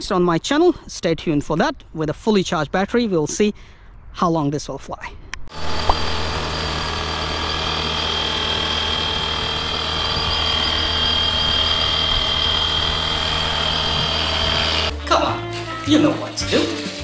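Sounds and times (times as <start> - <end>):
electric motor whine: 5.5 - 14.9
rotor whir: 5.5 - 14.9.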